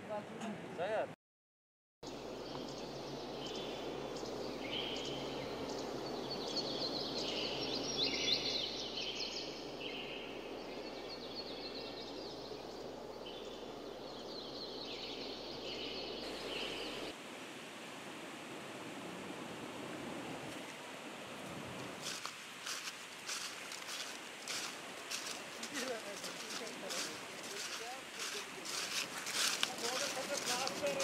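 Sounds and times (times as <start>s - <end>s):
birds chirping: 2.0s - 17.1s, 22.0s - 31.0s
river water flowing: 14.9s - 31.0s.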